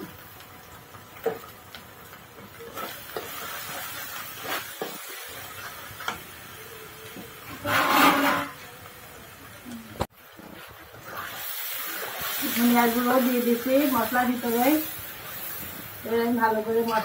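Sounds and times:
spices sizzling in oil: 0.0s - 17.0s
steel spatula scraping a pan: 7.5s - 8.6s.

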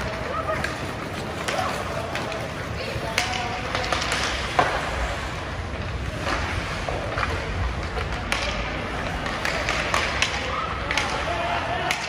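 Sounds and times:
hockey sticks and puck clacking: 0.0s - 12.0s
skates hissing on ice: 3.6s - 9.9s.

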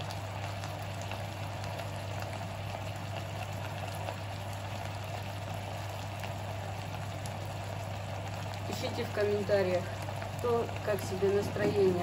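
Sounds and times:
faint crackles: 0.0s - 12.0s
mushrooms sizzling in a frying pan: 0.0s - 12.0s
steady low hum: 0.0s - 12.0s.

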